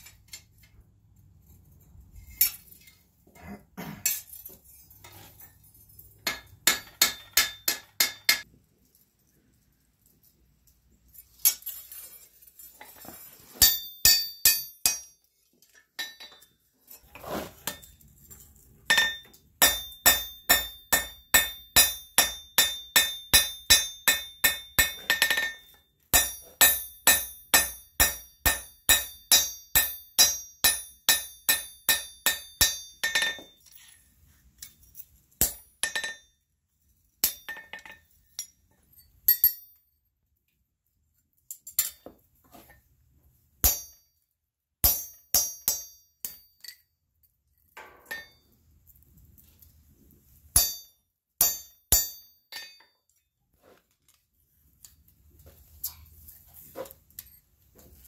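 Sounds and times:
hammer ringing on anvil: 13.6s - 15.2s, 18.9s - 33.6s, 43.6s - 44.1s, 44.8s - 46.8s, 50.6s - 52.9s.

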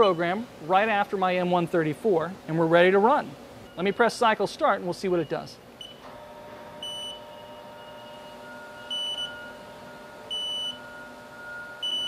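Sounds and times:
machine hum: 5.6s - 12.0s
short electronic beeps: 8.8s - 9.5s, 10.3s - 10.9s.

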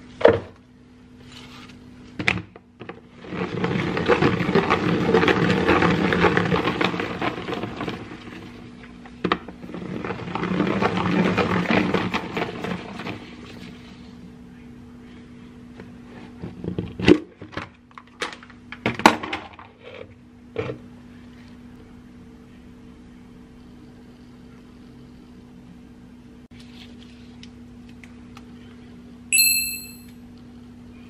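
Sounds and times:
short electronic beep: 29.3s - 30.1s.

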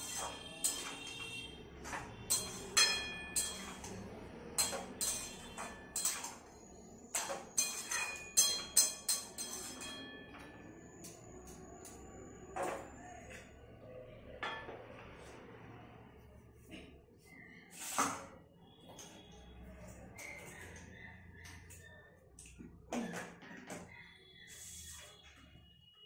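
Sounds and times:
metal spatula scraping steel pan: 0.0s - 1.4s, 2.3s - 4.0s, 4.6s - 6.5s, 7.1s - 10.1s.

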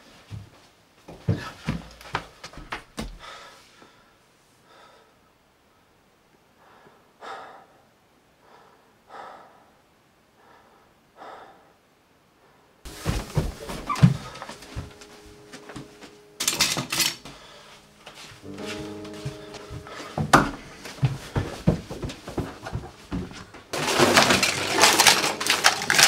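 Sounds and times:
heavy footsteps down a staircase: 0.0s - 3.5s, 12.9s - 26.0s
person breathing heavily in gasps: 3.2s - 5.2s, 6.6s - 9.8s, 10.4s - 11.8s, 17.2s - 18.0s, 19.8s - 21.6s.

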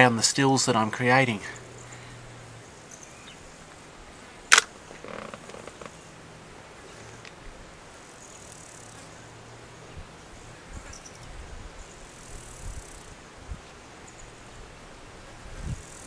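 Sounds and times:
insects chirring: 1.1s - 3.6s, 4.2s - 6.2s, 8.0s - 9.3s, 10.3s - 13.2s, 15.7s - 16.0s.

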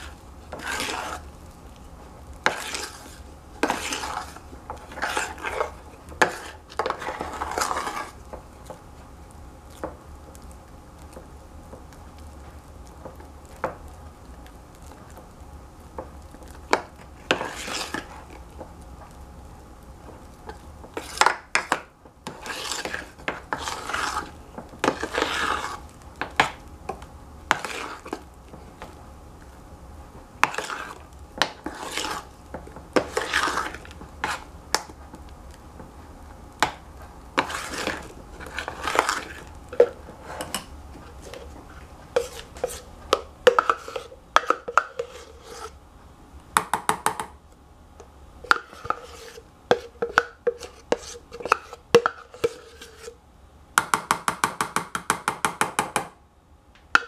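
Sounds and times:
metal spoon scraping saucepan: 30.5s - 31.0s, 31.6s - 32.3s, 37.4s - 45.8s, 48.4s - 53.2s.

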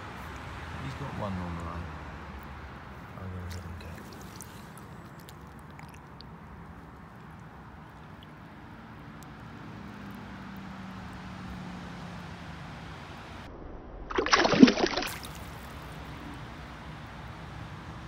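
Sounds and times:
stream water running: 1.4s - 13.0s, 14.1s - 18.0s
fish splashing: 2.4s - 9.4s, 14.1s - 16.4s.

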